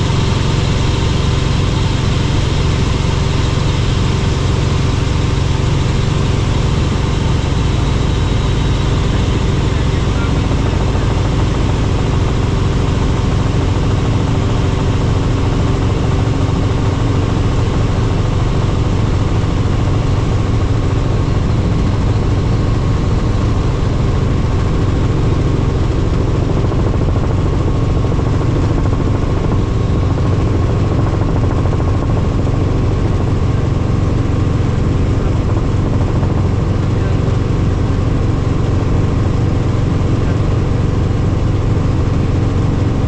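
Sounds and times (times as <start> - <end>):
helicopter engine and rotor: 0.0 - 43.0.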